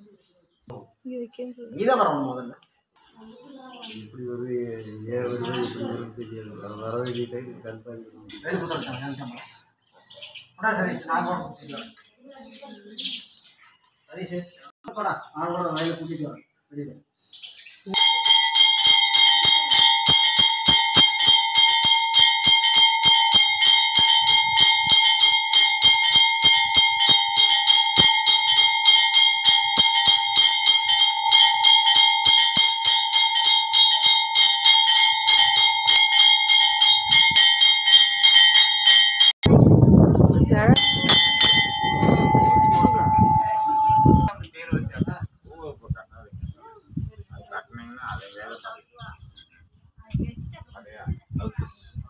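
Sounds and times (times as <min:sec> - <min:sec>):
metal temple bell clanging: 0:18.0 - 0:39.4, 0:40.8 - 0:44.4.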